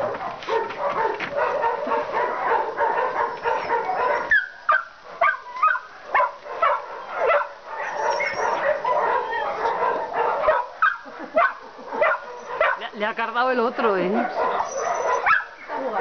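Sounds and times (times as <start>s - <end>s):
dog yipping: 0.0s - 12.9s, 14.0s - 16.0s
dog whining: 3.0s - 5.9s, 7.0s - 12.9s, 14.0s - 16.0s.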